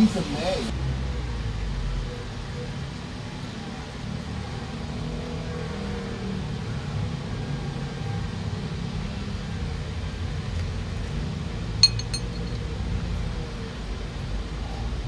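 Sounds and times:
utensil clinking against dishware: 11.8 - 12.6.

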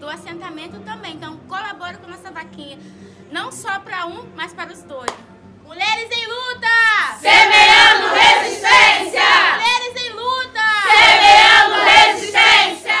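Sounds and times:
women chanting together: 7.1 - 9.8, 10.8 - 13.0.

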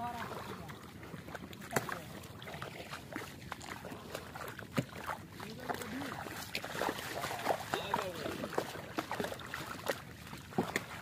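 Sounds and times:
water sloshing around legs: 0.0 - 11.0.

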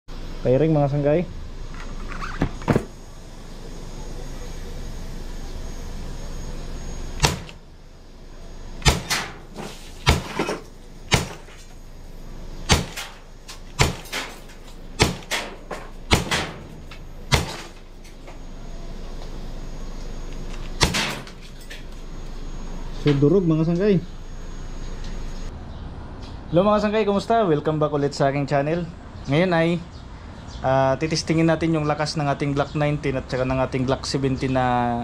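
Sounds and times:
airsoft pistol shots: 7.2 - 7.6, 8.8 - 10.5, 11.1 - 11.5, 12.7 - 13.2, 13.8 - 14.4, 15.0 - 17.7, 20.8 - 21.3.

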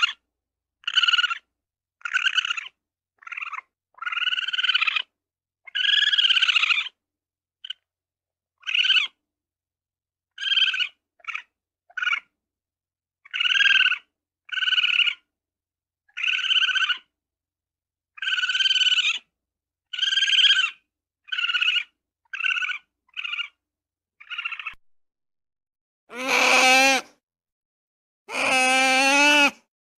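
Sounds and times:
ferret calling: 0.8 - 1.4, 2.0 - 5.1, 19.9 - 23.6, 24.2 - 24.8, 26.1 - 27.0, 28.3 - 29.6.

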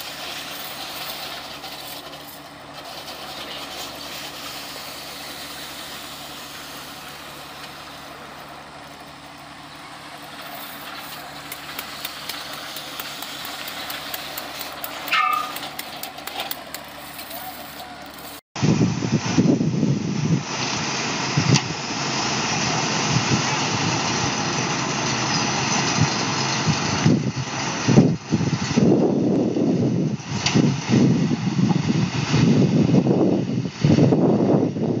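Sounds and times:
machine hum with hiss: 0.0 - 20.4.

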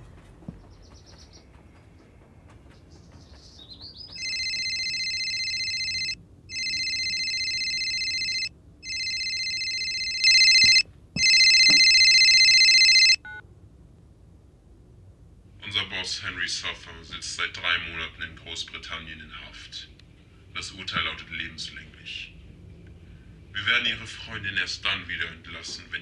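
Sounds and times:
smartphone ringing: 4.2 - 13.4.

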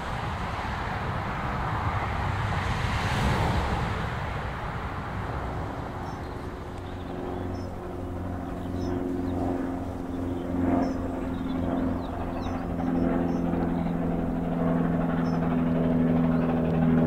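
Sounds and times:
deep engine drone: 4.8 - 17.0
small birds chirping: 5.9 - 16.9.

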